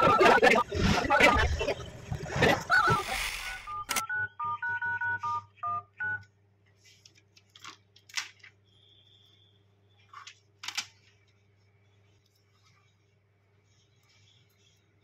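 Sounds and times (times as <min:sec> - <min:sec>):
phone keypad beeps: 0:03.4 - 0:06.3.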